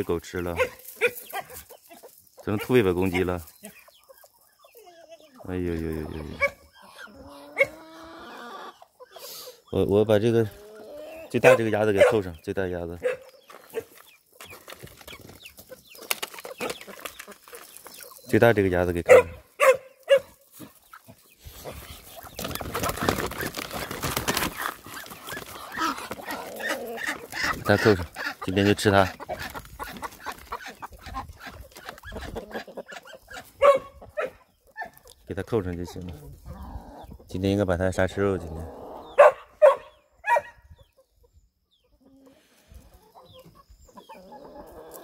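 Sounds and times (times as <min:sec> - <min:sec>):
hens clucking: 0:00.0 - 0:39.9, 0:40.6 - 0:45.0
plastic crate scraping on gravel: 0:21.5 - 0:30.8.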